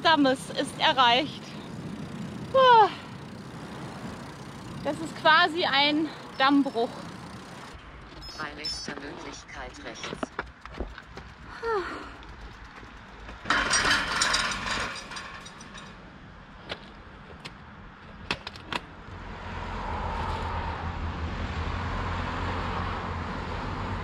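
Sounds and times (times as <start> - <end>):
car approaching: 0.0 - 18.1
loud rattling clatter: 9.8 - 16.1.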